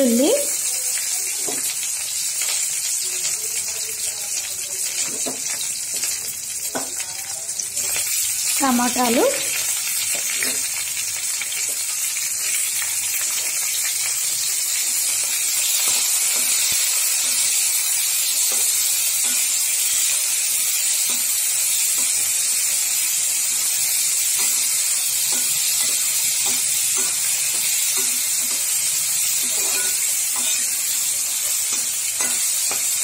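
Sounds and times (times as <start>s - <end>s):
vegetables sizzling in hot oil: 0.0s - 33.0s
spatula stirring in a wok: 4.9s - 33.0s.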